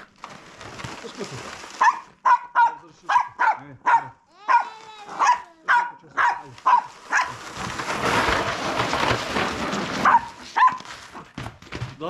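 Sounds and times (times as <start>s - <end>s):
small dog barking: 1.8s - 7.4s, 10.0s - 10.8s.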